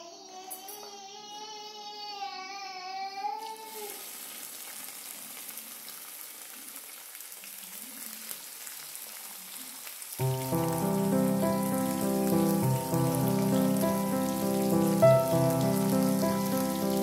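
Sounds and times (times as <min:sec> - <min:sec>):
meat sizzling in oil: 0:03.7 - 0:17.0
background music: 0:10.2 - 0:17.0.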